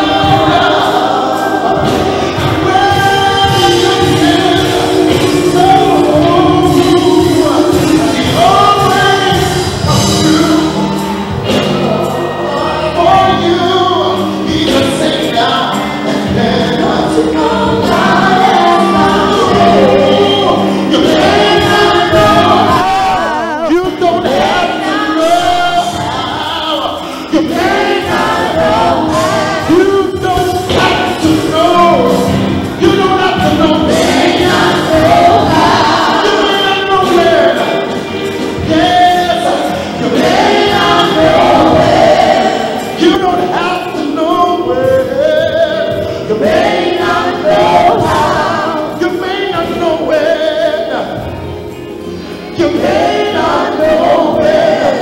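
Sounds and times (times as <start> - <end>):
man singing into a microphone: 2.3 - 10.9, 11.5 - 51.3.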